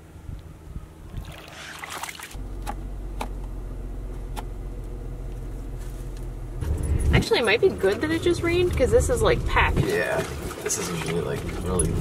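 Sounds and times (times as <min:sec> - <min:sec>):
car engine humming: 0:00.0 - 0:12.0
water lapping and splashing: 0:01.1 - 0:02.4, 0:09.5 - 0:12.0.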